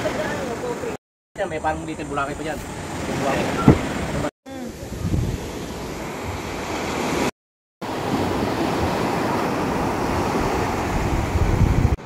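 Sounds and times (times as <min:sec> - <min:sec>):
surf washing up a beach: 0:00.0 - 0:01.0, 0:02.6 - 0:12.0
wind buffeting microphone: 0:02.4 - 0:05.6, 0:08.1 - 0:12.0.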